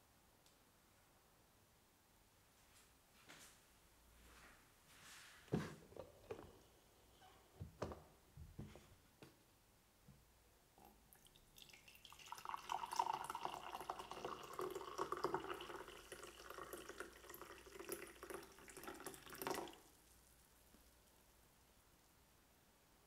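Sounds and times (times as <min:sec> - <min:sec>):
tea pouring into a mug: 0:10.8 - 0:20.2.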